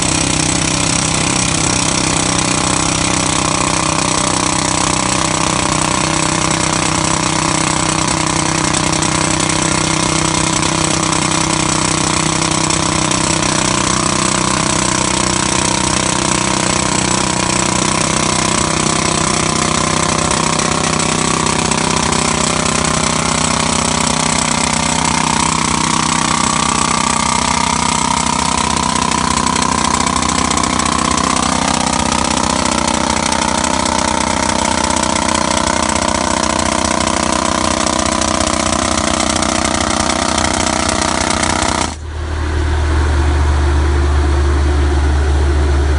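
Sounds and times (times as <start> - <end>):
jack hammer drilling into soil: 0.0 - 42.1
rising tone: 42.0 - 45.9.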